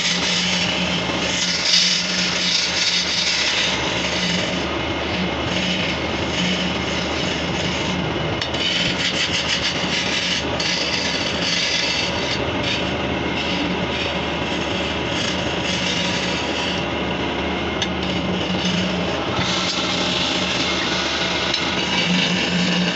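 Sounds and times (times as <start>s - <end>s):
chisel scraping spinning wood: 0.0s - 22.9s
wood lathe humming: 0.0s - 22.9s.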